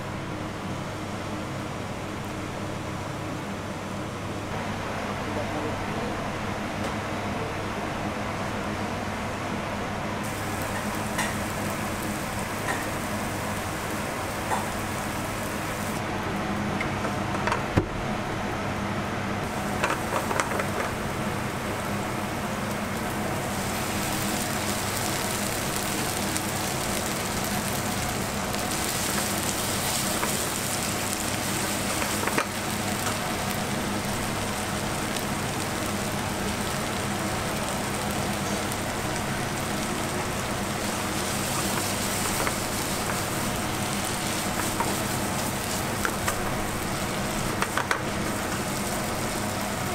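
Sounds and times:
food sizzling in frying pan: 0:10.2 - 0:16.0, 0:19.4 - 0:49.9.

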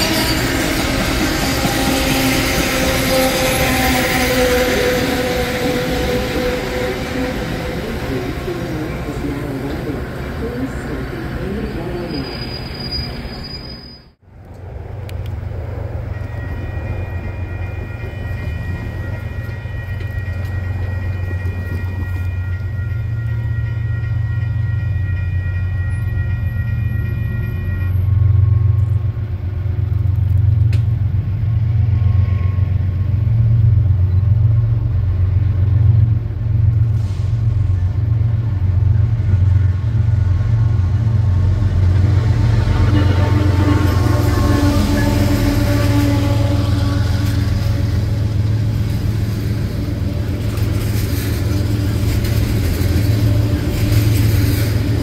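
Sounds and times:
diesel locomotive engine rumble: 0:00.0 - 0:55.0
train horn chord: 0:42.5 - 0:48.5.

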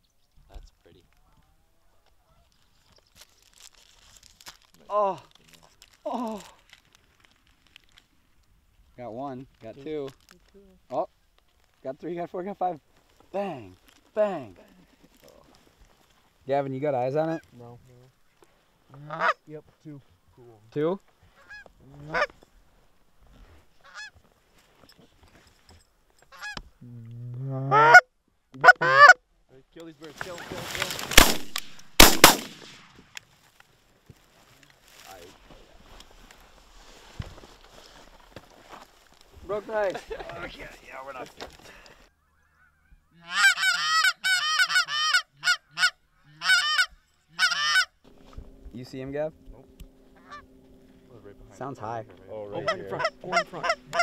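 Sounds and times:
goose honking: 0:19.0 - 0:19.4, 0:21.3 - 0:22.3, 0:23.8 - 0:24.2, 0:26.3 - 0:26.6, 0:27.7 - 0:28.0, 0:28.6 - 0:29.2, 0:42.2 - 0:48.0, 0:50.1 - 0:50.5, 0:51.8 - 0:54.0.

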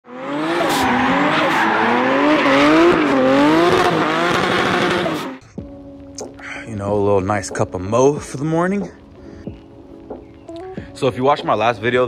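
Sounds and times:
car engine revving hard: 0:00.1 - 0:05.4.

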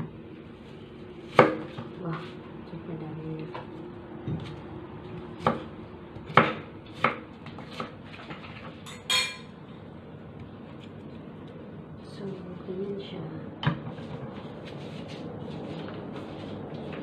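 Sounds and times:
ringing clink: 0:08.9 - 0:09.5.

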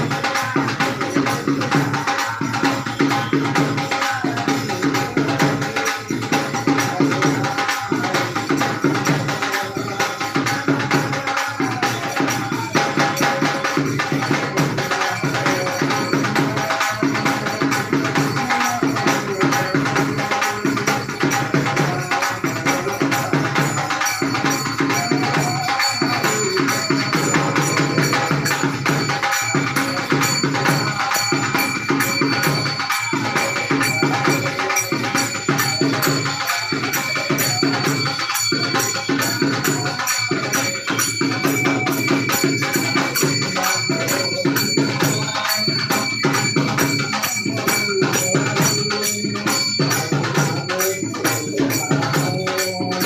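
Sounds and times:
drum beat: 0:00.0 - 0:53.0
hand cymbals: 0:00.0 - 0:53.0.

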